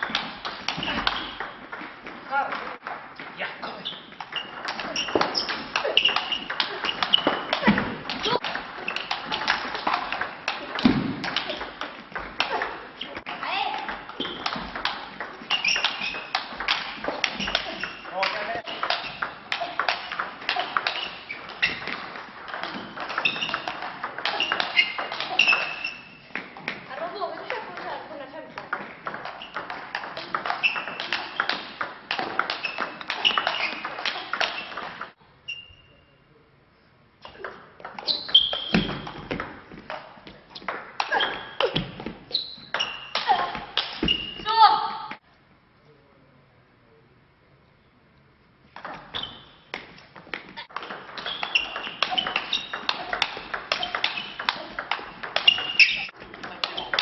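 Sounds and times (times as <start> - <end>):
table tennis ball clicking: 50.7 - 57.0.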